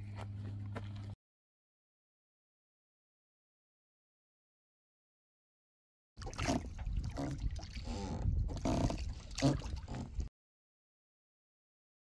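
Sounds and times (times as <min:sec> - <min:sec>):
water lapping: 0:06.2 - 0:10.3
wind rumble on microphone: 0:06.2 - 0:10.3.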